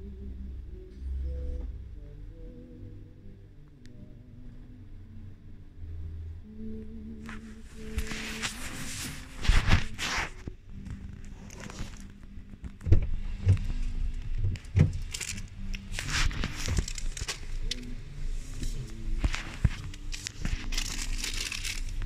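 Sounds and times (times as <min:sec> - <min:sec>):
car interior rumble: 0:10.4 - 0:22.0.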